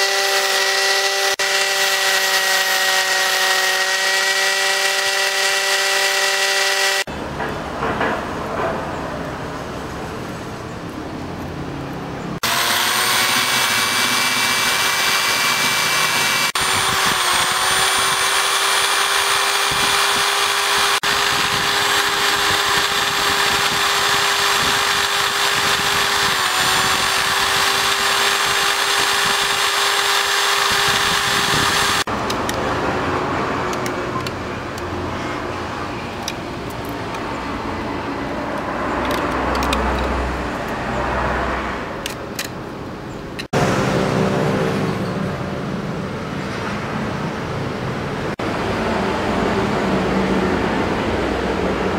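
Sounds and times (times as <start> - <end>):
rotary tool grinding corn cob: 0.0 - 7.1, 12.4 - 32.6.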